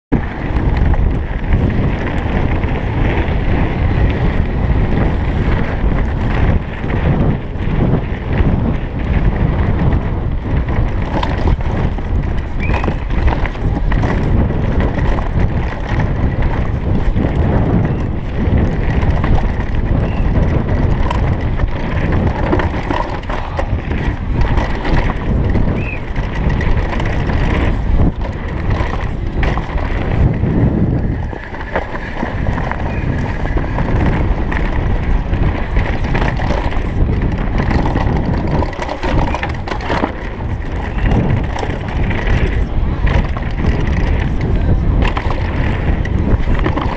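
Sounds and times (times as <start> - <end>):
wind rush on microphone: 0.0 - 46.9
bike knocking and rattling: 0.1 - 46.9
bike tyres rolling on gravel: 0.1 - 46.9.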